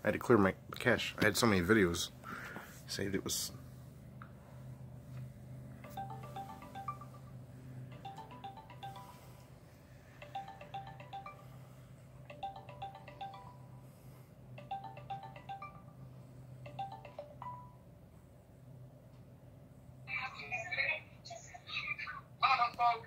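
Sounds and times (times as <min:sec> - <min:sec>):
phone ringing chime tone: 0:05.8 - 0:17.9.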